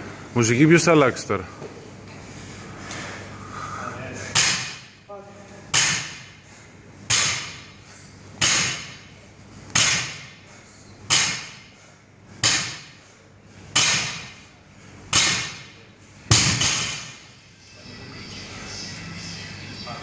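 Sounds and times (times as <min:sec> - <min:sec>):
barbell thudding on rubber floor: 0:16.3 - 0:17.2.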